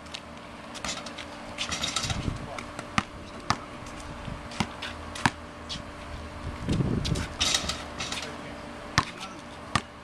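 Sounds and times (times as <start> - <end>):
basketball bouncing on concrete: 0.7 - 5.9, 8.9 - 10.0.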